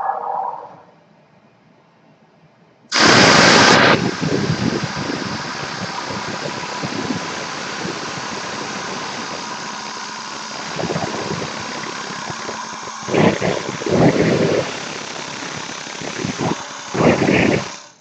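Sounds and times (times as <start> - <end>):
wood lathe whirring: 3.0 - 18.0.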